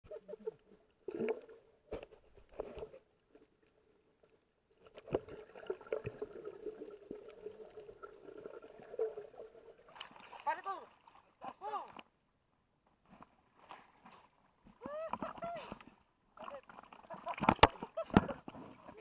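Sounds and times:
underwater bubbling: 0:00.0 - 0:10.3
underwater knocks and clicks: 0:17.3 - 0:18.7.

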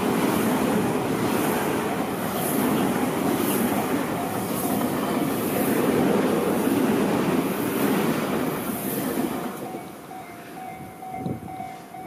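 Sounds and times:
train wheels rumbling on rail: 0:00.0 - 0:12.0
train hiss: 0:01.2 - 0:10.7.

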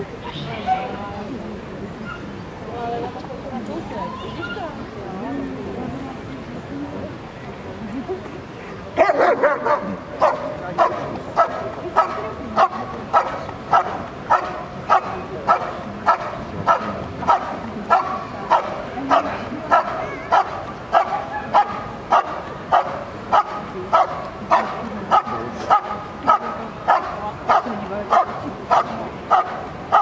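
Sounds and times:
dog barking rhythmically: 0:09.0 - 0:30.0.

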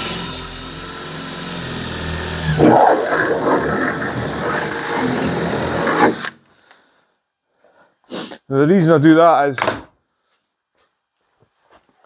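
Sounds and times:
cordless drill whining through metal: 0:00.0 - 0:06.5.

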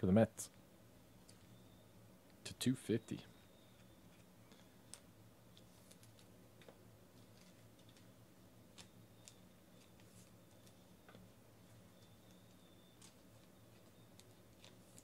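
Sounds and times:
faint steady hum: 0:00.0 - 0:15.0
trading cards clicking: 0:08.7 - 0:11.2.

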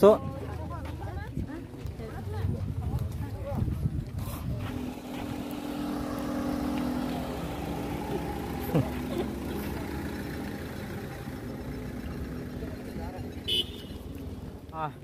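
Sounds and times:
vehicle engine running: 0:04.2 - 0:15.0.

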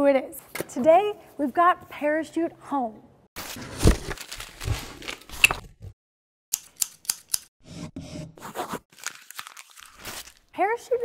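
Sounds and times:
paper and cardboard rustling: 0:03.4 - 0:05.5, 0:08.4 - 0:10.4
sharp snipping clicks: 0:06.5 - 0:07.5.

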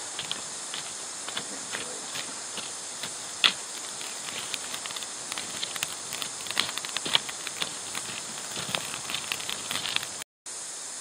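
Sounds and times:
wood fire crackling: 0:00.0 - 0:10.2
fire hiss: 0:00.0 - 0:11.0.

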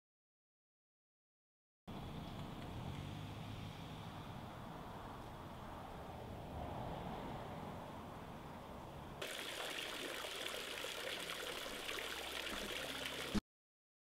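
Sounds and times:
fountain water trickling and splashing: 0:09.2 - 0:13.4.

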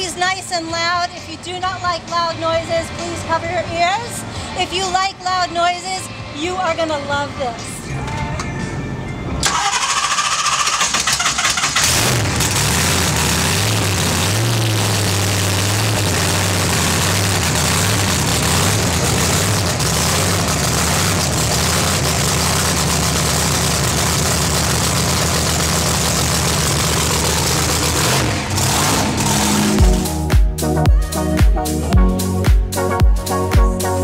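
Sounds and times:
loud vee eight engine running: 0:09.4 - 0:30.3.

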